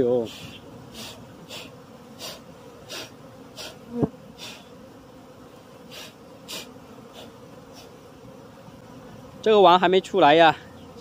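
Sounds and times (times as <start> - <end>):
bee buzzing past: 0.0 - 11.0
honeybee swarm humming: 0.0 - 11.0
short hissing noises: 0.2 - 4.8, 5.8 - 8.1.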